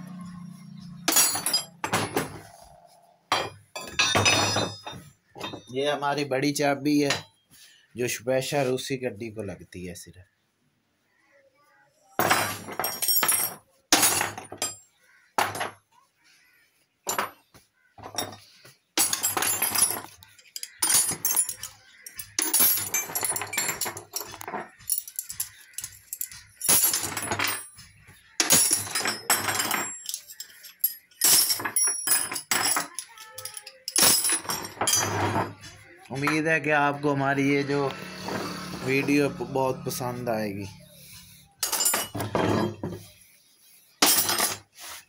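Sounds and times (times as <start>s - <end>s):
metal tools clinking and clattering: 1.0s - 2.6s, 3.3s - 6.0s, 12.2s - 15.8s, 17.1s - 17.4s, 18.0s - 36.4s, 41.6s - 43.1s, 44.0s - 44.7s.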